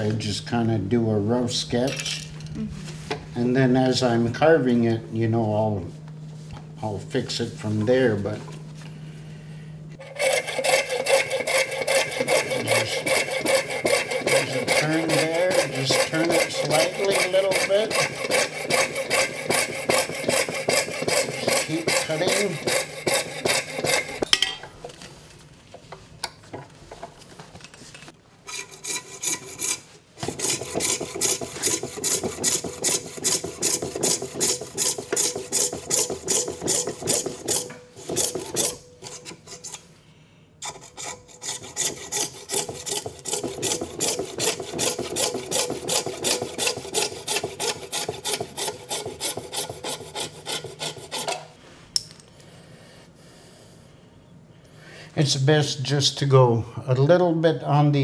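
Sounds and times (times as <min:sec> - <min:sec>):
saw cutting back and forth: 0:10.0 - 0:24.3, 0:28.5 - 0:39.9, 0:40.6 - 0:51.5.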